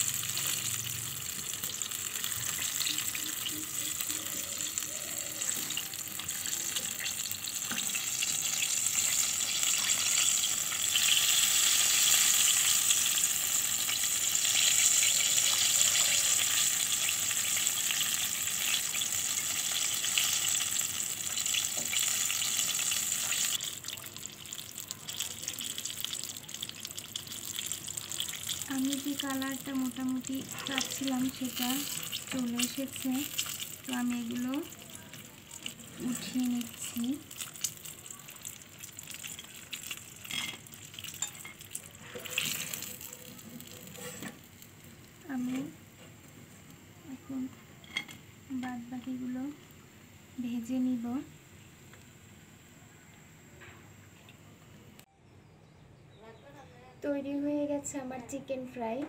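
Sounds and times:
chicken sizzling in hot oil: 0.0s - 49.8s
strainer scraping against pan: 43.9s - 44.4s.

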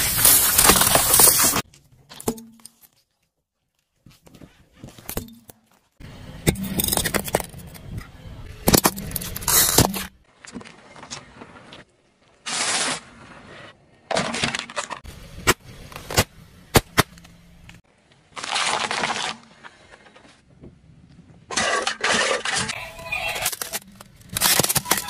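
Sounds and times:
toys crunching under car tyre: 0.0s - 1.7s, 12.4s - 20.3s, 21.5s - 25.0s.

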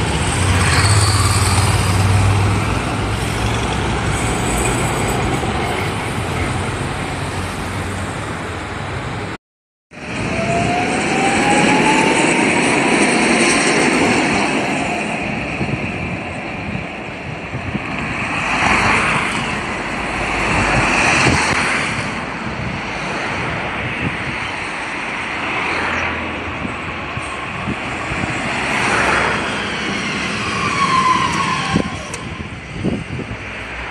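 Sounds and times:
wheel on rail rumble: 0.0s - 9.3s
traffic: 0.0s - 33.9s
tram motor whine: 10.0s - 21.9s, 26.7s - 33.7s.

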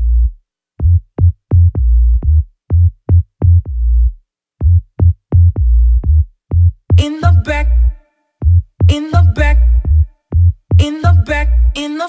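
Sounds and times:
deep bass notes: 0.0s - 11.8s
drum machine kicks: 0.8s - 3.8s, 4.6s - 7.1s, 8.4s - 11.3s
tech house music: 0.8s - 11.8s.

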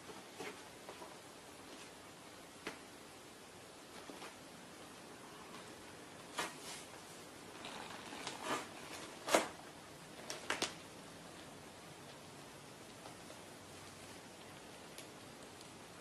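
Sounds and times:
faint steady hiss: 0.0s - 16.0s.

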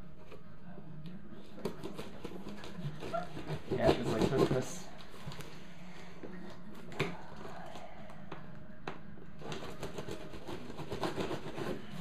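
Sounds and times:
cardboard scraping and rustling: 1.6s - 4.9s.

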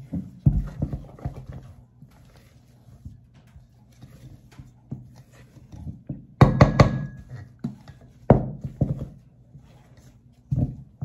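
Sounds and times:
wooden spoon knocking on metal bowl: 6.0s - 9.2s.

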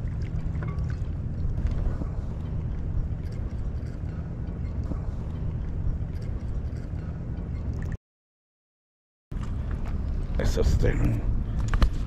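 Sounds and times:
lake water: 0.0s - 8.0s
wind rumbling: 0.0s - 8.0s.

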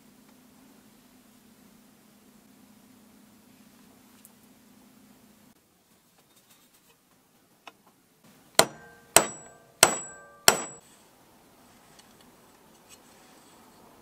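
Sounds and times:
hammer striking steel punch: 8.6s - 10.8s.

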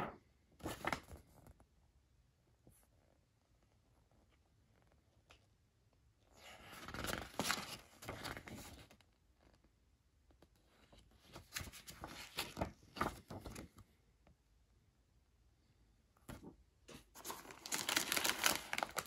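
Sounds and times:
paper rustling and crinkling: 6.4s - 9.0s, 10.8s - 13.8s, 16.3s - 19.0s.

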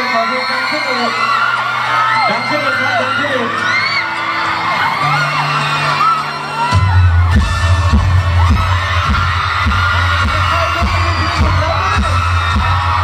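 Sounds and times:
heavy bass beat: 6.7s - 13.0s.

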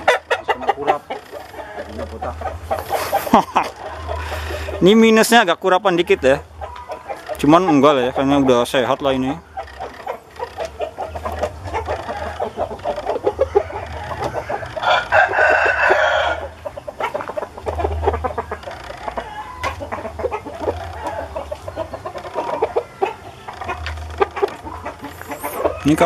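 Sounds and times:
roosters clucking: 0.0s - 26.0s
rooster crowing: 3.8s - 5.0s, 11.1s - 17.2s, 18.4s - 21.6s.

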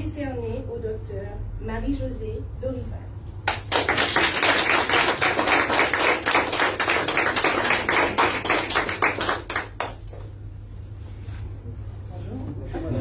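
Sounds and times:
audience applauding: 3.5s - 10.1s.

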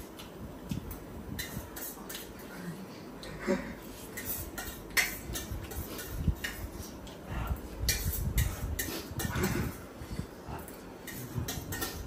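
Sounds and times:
fork scraping on plate: 3.9s - 7.0s.

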